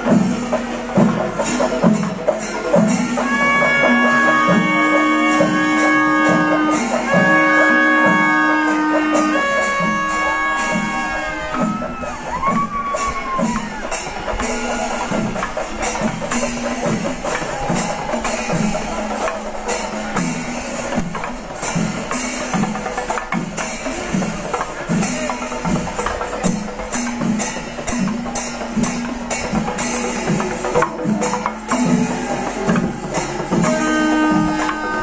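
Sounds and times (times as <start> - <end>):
drums and clashing cymbals: 0.0 - 35.0.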